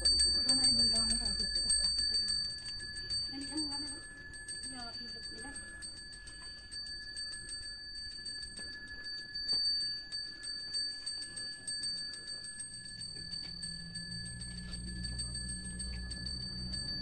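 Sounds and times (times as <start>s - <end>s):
handbell ringing rapidly: 0.0s - 17.0s.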